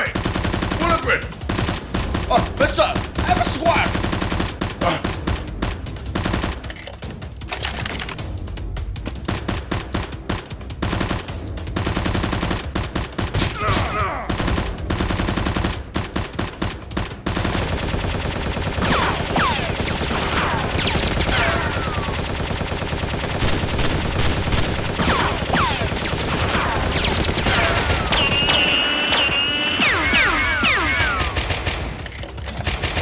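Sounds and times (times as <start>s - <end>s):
automatic gunfire sound effects: 9.2s - 32.0s.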